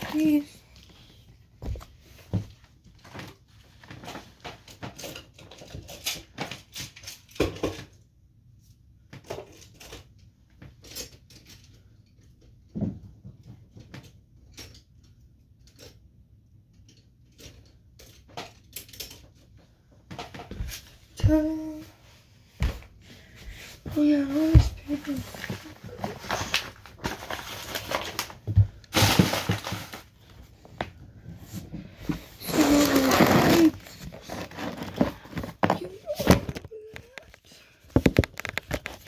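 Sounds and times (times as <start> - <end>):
objects knocking and tapping: 33.9 - 39.0.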